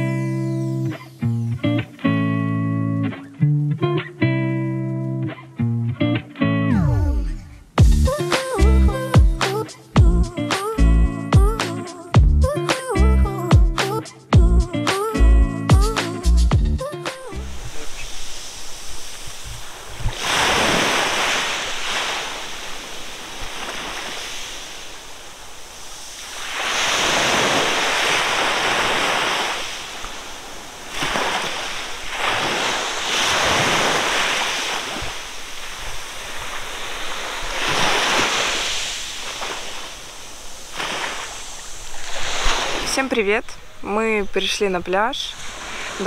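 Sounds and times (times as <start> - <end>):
sea waves breaking on beach: 17.2 - 43.8, 45.2 - 46.0
wind on microphone: 17.4 - 42.9.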